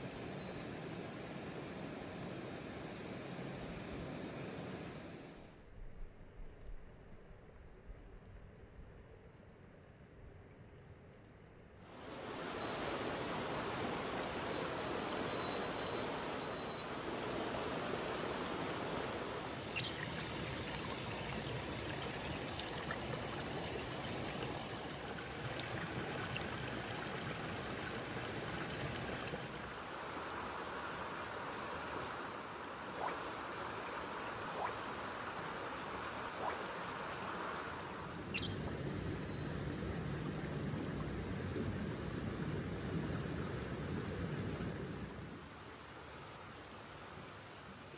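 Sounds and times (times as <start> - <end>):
short high chirps: 0.0 - 0.6, 19.8 - 20.9, 38.4 - 39.5
stream water flowing: 0.0 - 5.4, 11.9 - 39.4.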